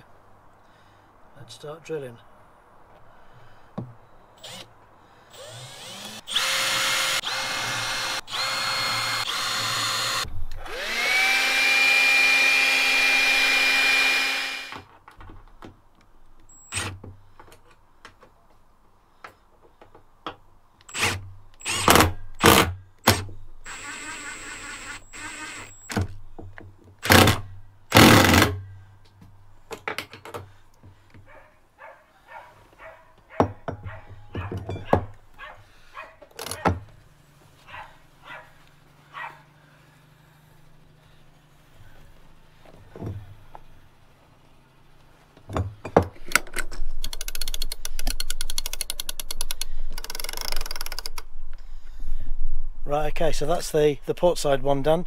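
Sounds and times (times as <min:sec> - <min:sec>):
cordless drill whining: 0:04.4 - 0:04.7, 0:05.3 - 0:14.8, 0:16.5 - 0:17.0, 0:20.8 - 0:26.2, 0:27.0 - 0:28.6.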